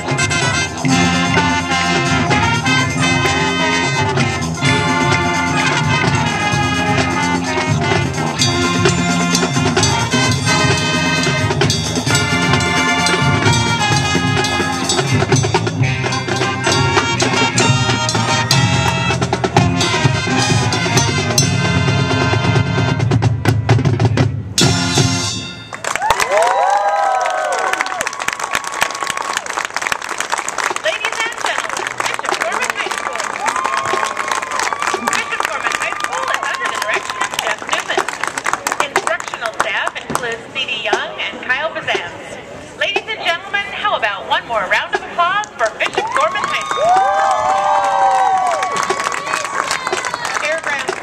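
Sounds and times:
marching drums: 0:00.0 - 0:25.6
marching band brass: 0:00.0 - 0:26.5, 0:29.0 - 0:42.2, 0:42.8 - 0:51.0.

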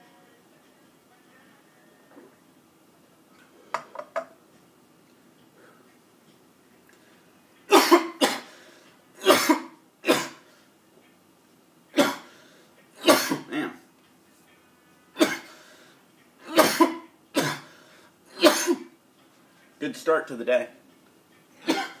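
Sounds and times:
man coughing hard: 0:07.7 - 0:08.5, 0:09.2 - 0:10.4, 0:13.0 - 0:13.7, 0:16.4 - 0:17.7, 0:18.4 - 0:18.9.

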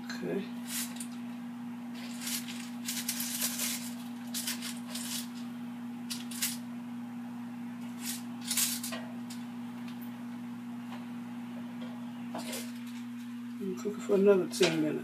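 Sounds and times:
steady low hum: 0:00.0 - 0:15.0
spatula scraping metal basket: 0:02.0 - 0:05.4.

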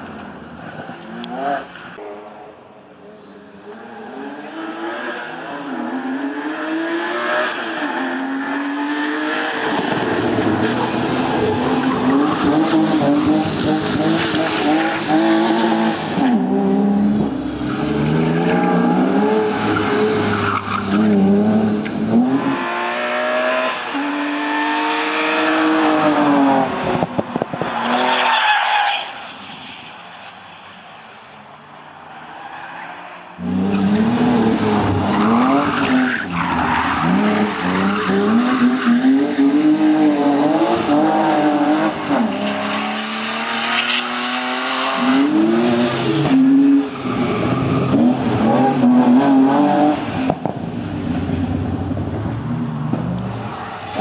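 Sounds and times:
car engine revving hard: 0:10.1 - 0:27.0, 0:33.4 - 0:50.5.

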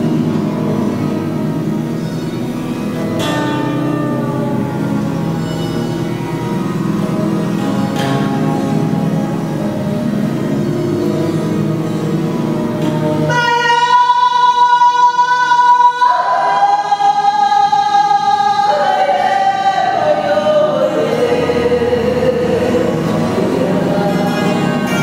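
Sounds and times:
woman singing long notes: 0:13.1 - 0:25.0.

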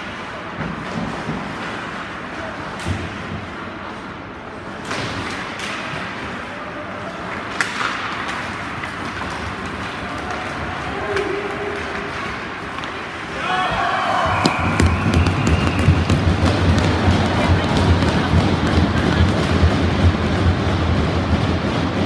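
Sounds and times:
arena noise: 0:00.0 - 0:22.0
hockey stick knocking puck: 0:07.3 - 0:22.0.

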